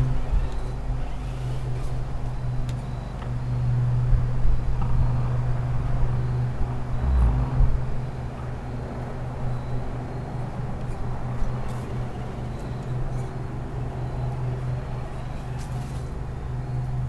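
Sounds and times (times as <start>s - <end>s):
toy truck electric motor humming: 0.0s - 2.4s.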